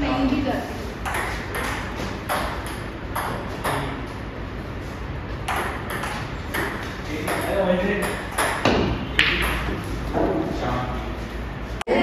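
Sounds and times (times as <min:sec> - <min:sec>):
ping-pong ball clicking: 0:01.0 - 0:03.9, 0:05.5 - 0:09.6.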